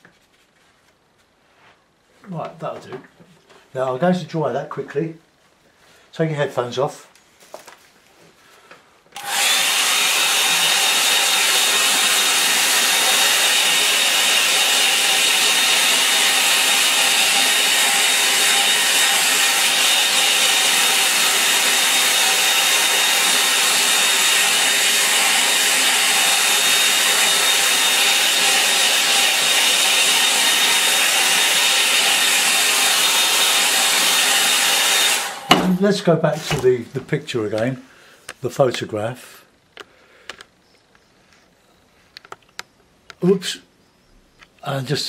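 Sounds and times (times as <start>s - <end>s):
hair dryer running: 9.2s - 35.8s.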